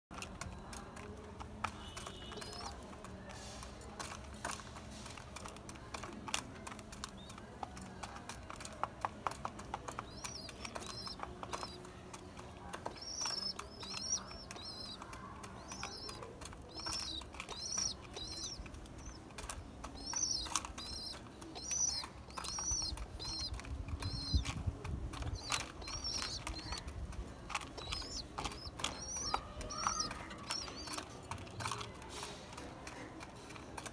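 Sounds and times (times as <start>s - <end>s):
pigeons pecking plastic feeder: 0.1s - 33.9s
bird chirping: 1.7s - 3.4s, 9.5s - 31.9s.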